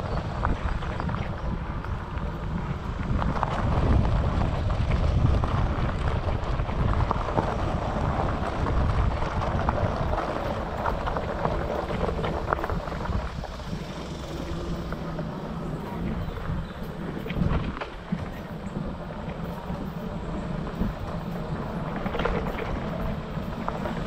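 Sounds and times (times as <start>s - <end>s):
wind buffeting microphone: 0.0s - 24.0s
footsteps on gravel: 0.1s - 24.0s.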